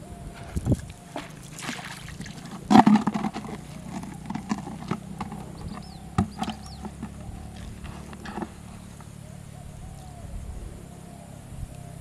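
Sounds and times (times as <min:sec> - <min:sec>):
low steady hum: 0:00.0 - 0:12.0
fishing float splashing: 0:00.3 - 0:09.2.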